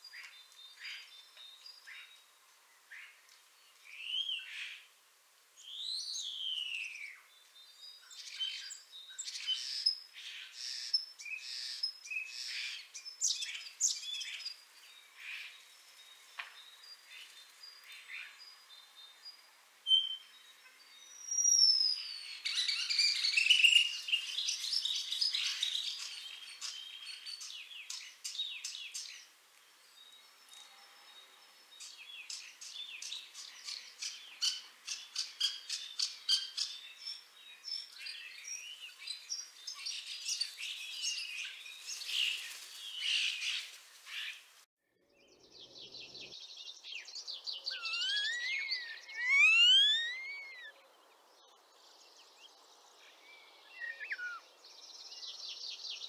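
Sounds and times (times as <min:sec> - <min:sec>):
starling singing: 0:47.1 - 0:50.7.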